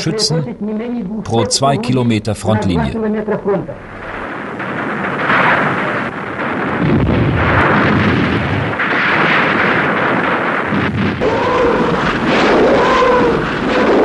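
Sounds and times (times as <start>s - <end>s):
wavering rising and falling tone: 0.0s - 1.9s
artillery guns and explosions: 3.8s - 14.0s.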